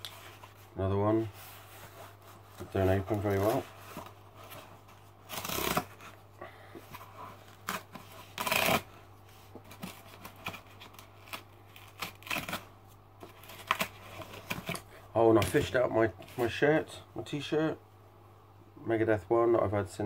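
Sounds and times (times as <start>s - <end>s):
cardboard ripping: 2.9s - 6.2s, 7.4s - 9.0s, 9.7s - 14.8s.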